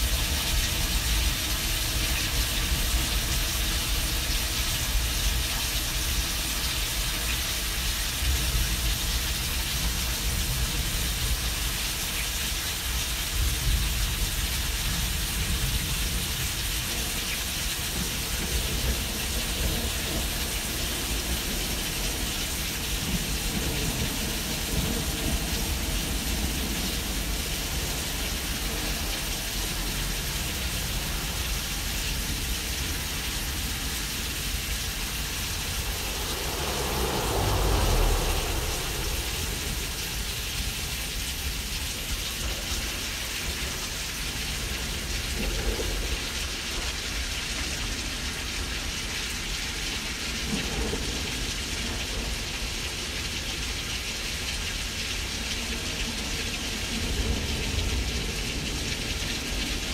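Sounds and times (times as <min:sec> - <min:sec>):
rain hissing: 0:00.0 - 0:59.9
thunder rumbling: 0:17.9 - 0:42.7.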